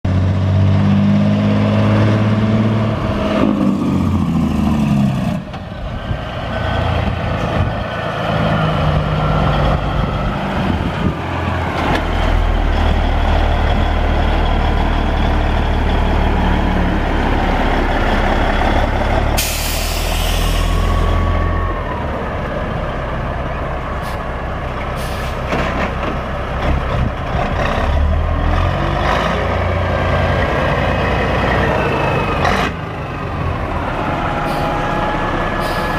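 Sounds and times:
diesel truck engine running: 0.1s - 35.9s
air release hiss: 19.4s - 20.8s.

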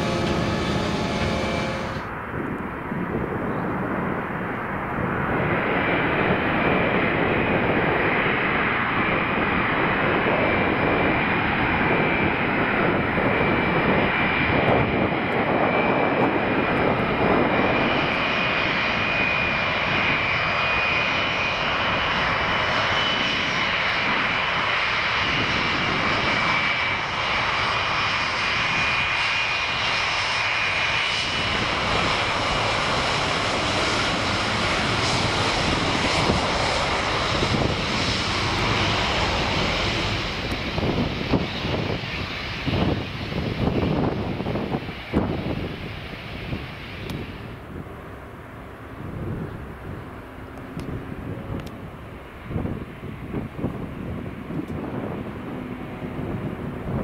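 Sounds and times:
high fan whine: 0.0s - 2.6s
jet engines roaring: 0.0s - 57.0s.

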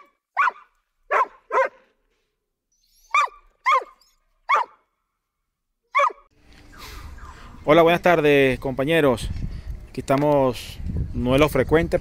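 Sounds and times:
dog barking: 0.0s - 1.9s, 3.1s - 4.8s, 5.9s - 6.3s.

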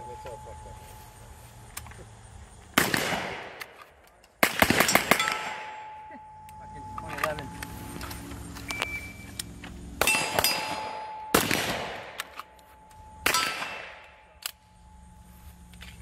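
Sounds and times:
steel targets pinging: 4.8s - 7.7s, 10.0s - 14.5s
gunshots with echo: 10.0s - 12.2s.

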